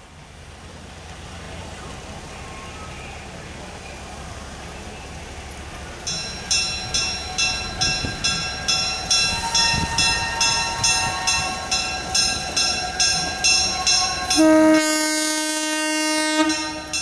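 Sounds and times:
locomotive bell ringing: 4.8s - 17.0s.

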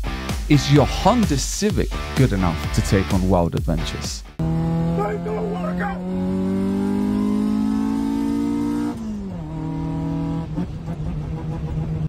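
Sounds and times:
car engine accelerating: 4.4s - 12.0s.

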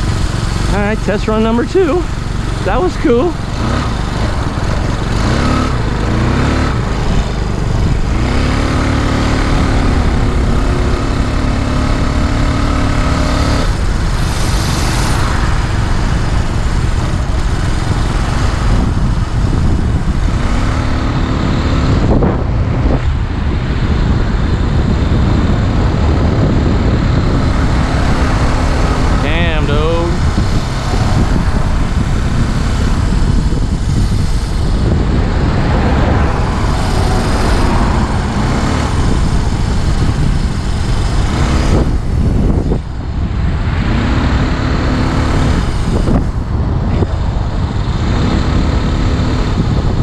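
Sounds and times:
wind noise on microphone: 0.0s - 50.0s.

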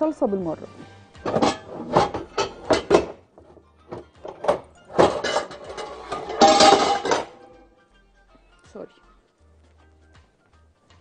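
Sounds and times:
background music: 0.0s - 11.0s
metal pots clattering: 1.2s - 7.7s.

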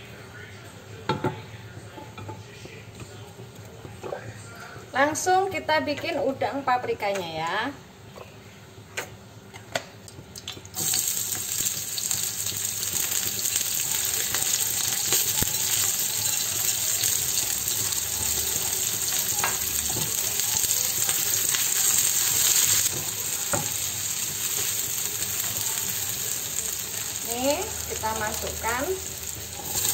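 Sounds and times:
onions sizzling in hot oil: 10.7s - 29.9s.

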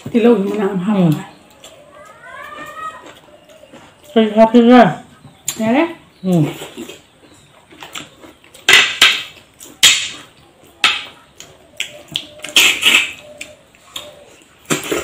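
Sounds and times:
chewing and lip smacking: 0.0s - 4.3s, 9.4s - 15.0s.

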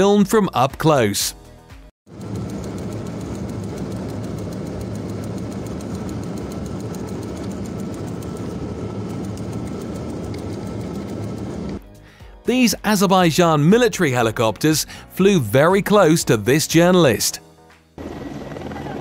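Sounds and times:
fast even ticking: 2.1s - 11.8s
aircraft engines droning: 2.1s - 12.9s, 18.0s - 19.0s.

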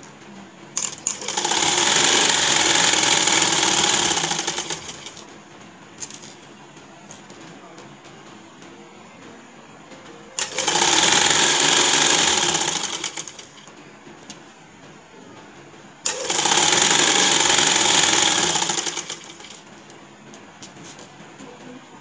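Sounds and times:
sewing machine needle clatter: 16.1s - 19.6s.

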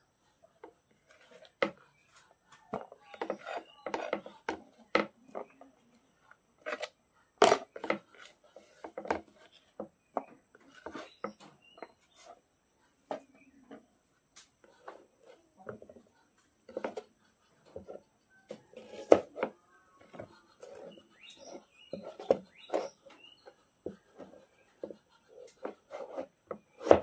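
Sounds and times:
spoon knocking and scraping on tray: 2.6s - 5.6s, 6.6s - 12.0s, 16.7s - 17.0s, 17.7s - 27.0s.

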